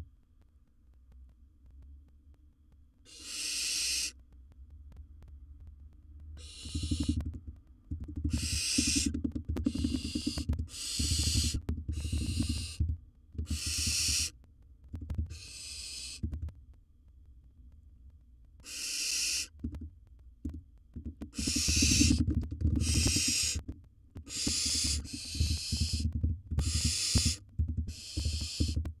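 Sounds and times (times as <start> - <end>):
owl rasping hissing calls: 3.1 - 4.2, 6.4 - 7.2, 8.2 - 12.8, 13.4 - 14.4, 15.3 - 16.2, 18.6 - 19.6, 21.3 - 22.2, 22.8 - 23.6, 24.2 - 28.8
low knocking and rumbling: 19.6 - 24.3, 25.0 - 29.0.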